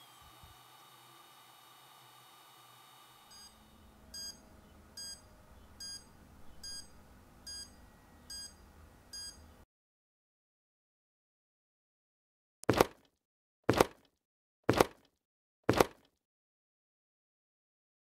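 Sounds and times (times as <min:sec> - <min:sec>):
dosimeter alarm beeping: 0:03.3 - 0:09.5.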